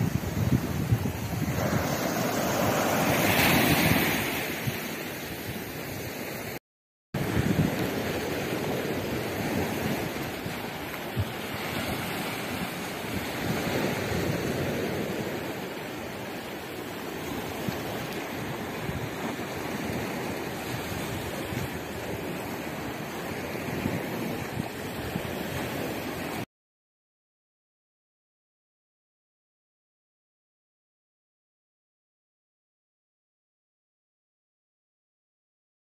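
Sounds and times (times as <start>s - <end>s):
waves washing against rocks: 0.0s - 5.3s, 7.2s - 26.4s
wind gusting over microphone: 0.0s - 6.5s, 7.2s - 26.4s.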